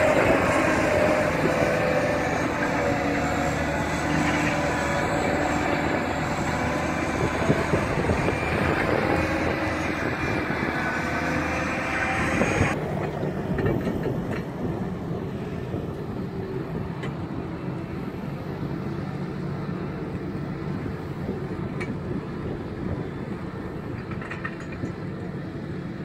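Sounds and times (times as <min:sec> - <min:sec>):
machinery rattling and knocking: 0:00.0 - 0:15.0
heavy diesel engine hum: 0:00.0 - 0:26.0.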